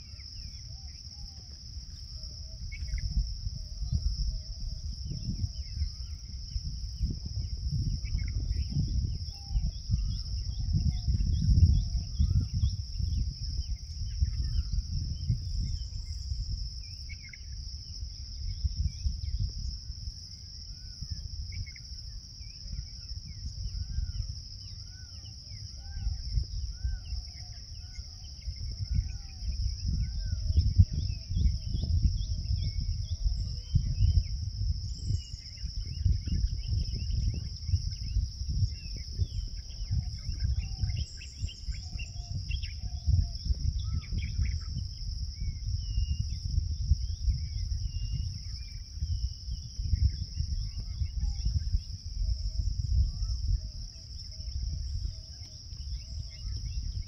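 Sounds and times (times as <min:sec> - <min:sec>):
high-pitched insect drone: 0:00.0 - 0:57.0
small birds chirping: 0:00.0 - 0:57.0.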